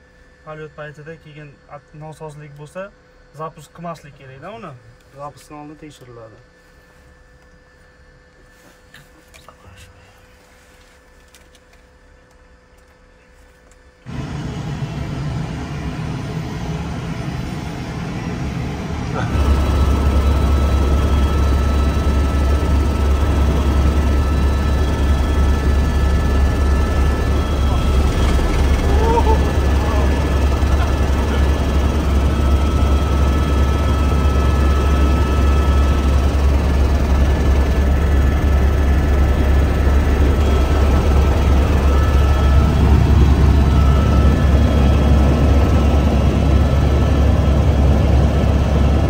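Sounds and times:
faint high whines: 0.0s - 49.0s
helicopter engine and rotor drone: 11.1s - 49.0s.

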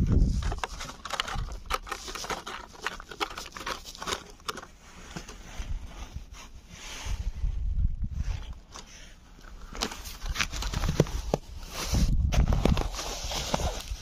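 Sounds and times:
cat crunching food: 0.4s - 4.7s.

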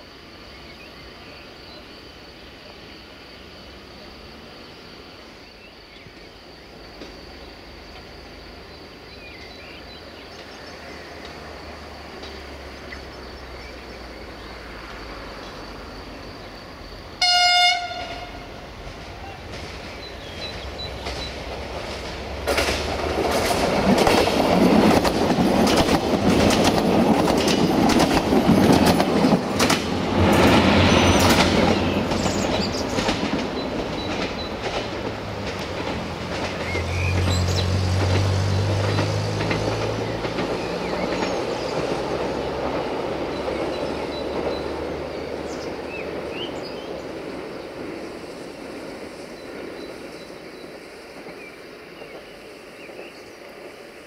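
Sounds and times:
train passing: 0.0s - 54.0s
train horn blast: 17.2s - 18.6s
wheels clicking over rail joints: 18.1s - 48.1s.

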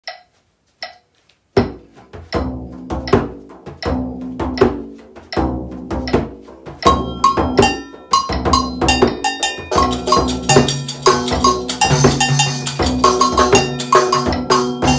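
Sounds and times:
agogo bells ringing: 6.8s - 14.9s.

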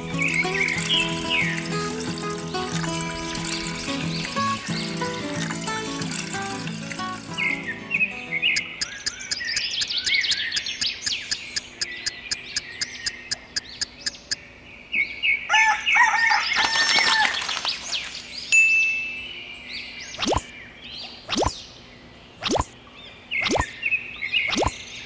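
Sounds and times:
birds chirping: 0.0s - 25.0s
rooster crowing: 15.5s - 17.5s.

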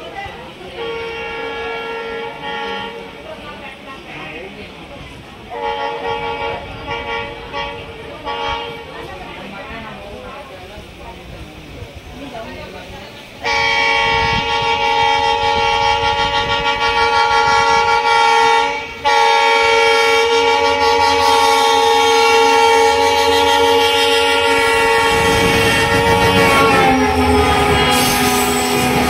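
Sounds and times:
train rumble: 0.0s - 29.0s
locomotive horn blasts: 0.7s - 3.2s, 5.5s - 8.9s, 13.4s - 29.0s.

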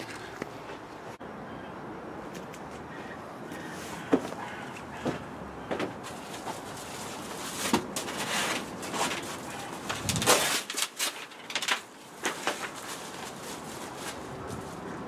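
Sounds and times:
materials rustling and clattering: 3.8s - 15.0s.

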